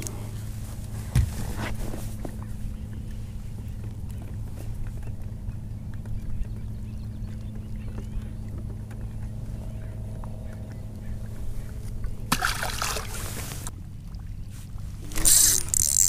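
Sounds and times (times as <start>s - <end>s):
low steady hum: 0.0s - 16.0s
fish splashing into water: 12.3s - 13.7s.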